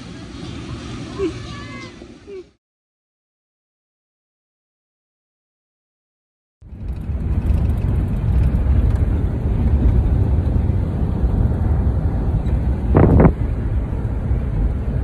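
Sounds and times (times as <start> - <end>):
wind buffeting microphone: 6.6 - 15.0
car cabin rumble: 12.9 - 13.4.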